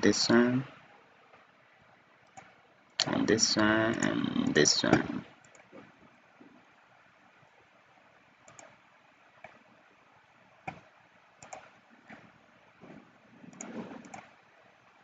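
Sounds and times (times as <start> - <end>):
faint hiss: 0.0 - 15.0
computer mouse clicking: 2.2 - 3.2, 4.9 - 5.9, 8.4 - 8.8, 9.4 - 9.7, 10.6 - 14.5.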